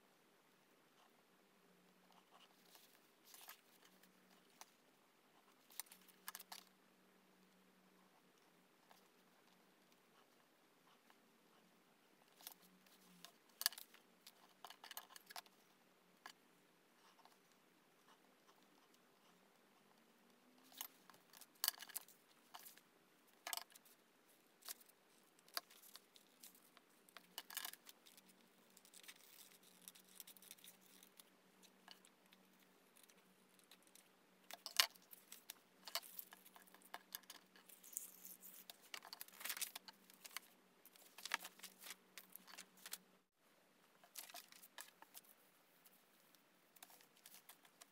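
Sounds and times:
paper rustling: 37.6s - 43.0s.

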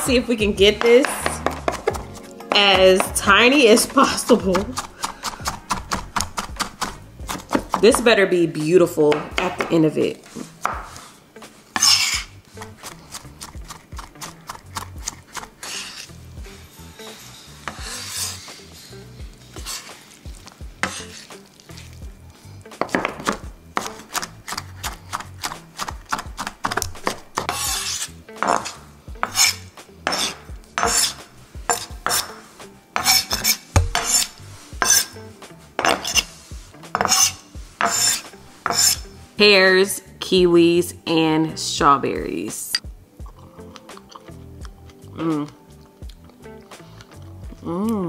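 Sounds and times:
knife chopping on wooden board: 0.6s - 8.0s, 10.6s - 11.0s, 22.8s - 32.4s, 33.0s - 35.1s, 35.8s - 36.3s, 36.9s - 39.0s.

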